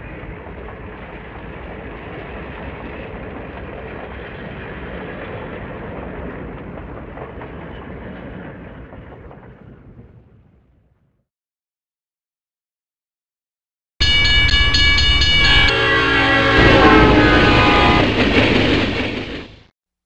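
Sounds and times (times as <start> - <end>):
train rumbling and rattling: 0.0 - 10.8, 14.0 - 19.7.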